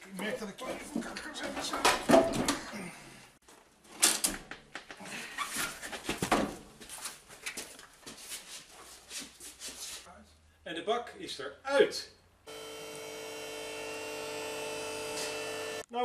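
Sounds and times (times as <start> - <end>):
men grunting and breathing heavily: 1.7 - 3.4, 4.9 - 5.8.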